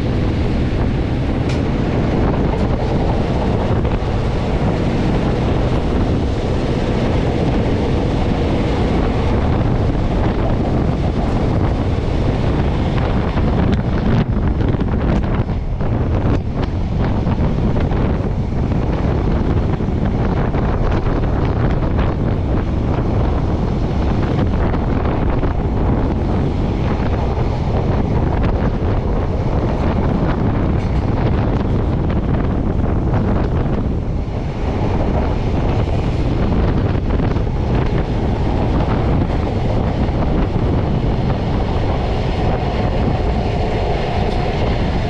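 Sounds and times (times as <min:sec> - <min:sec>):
train rumbling on rails: 0:00.0 - 0:45.0
wind buffeting microphone: 0:00.0 - 0:45.0.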